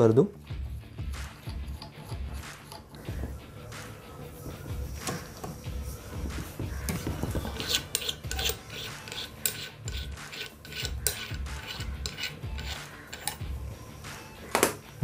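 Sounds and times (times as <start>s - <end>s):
metal clicks and scraping: 1.4s - 3.0s, 7.6s - 13.4s.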